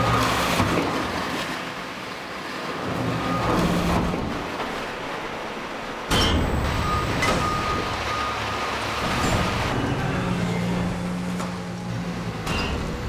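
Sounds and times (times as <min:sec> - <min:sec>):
diesel engine running: 0:03.0 - 0:13.0.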